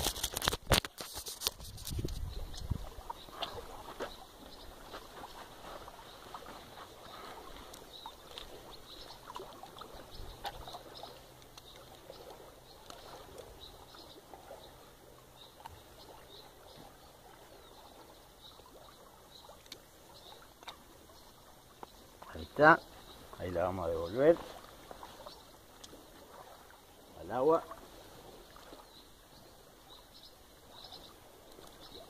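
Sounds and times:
clicks and rustles of fish handling: 0:00.0 - 0:02.7
flowing creek water: 0:00.0 - 0:32.0.

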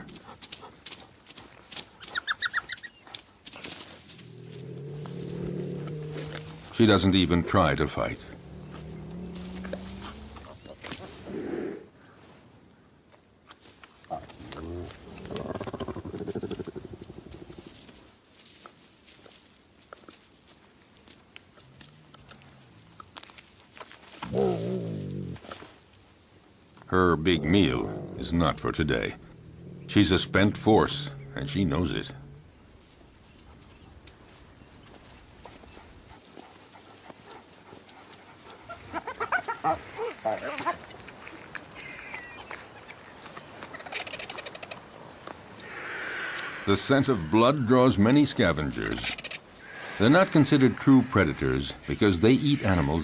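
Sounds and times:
cheetahs chirping: 0:02.0 - 0:03.2
low pulsing animal growl: 0:04.2 - 0:06.8, 0:07.6 - 0:10.7, 0:24.2 - 0:25.4, 0:27.0 - 0:32.6
sharp clicks: 0:43.8 - 0:44.8, 0:48.9 - 0:49.4.

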